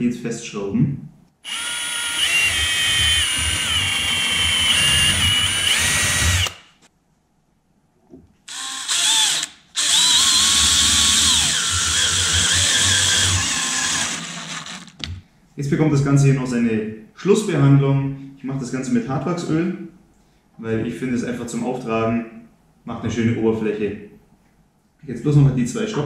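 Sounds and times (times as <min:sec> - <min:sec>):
cordless drill motor whine: 0:01.4 - 0:06.7, 0:08.5 - 0:15.0.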